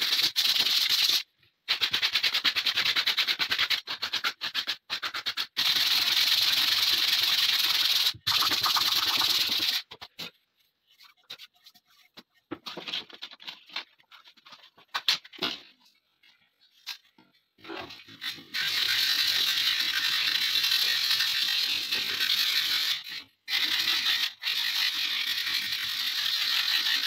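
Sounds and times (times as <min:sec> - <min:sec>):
sanding block rubbing wood: 0:05.1 - 0:09.9.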